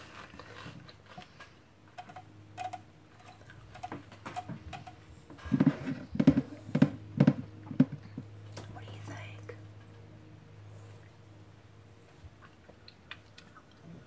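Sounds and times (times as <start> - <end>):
chewing mouth clicks: 12.4 - 14.0.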